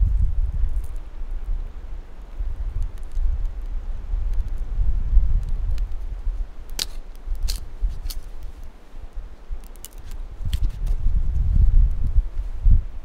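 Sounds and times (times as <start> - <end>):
wind rumble on microphone: 0.0 - 13.0
campfire crackling and popping: 2.2 - 11.0.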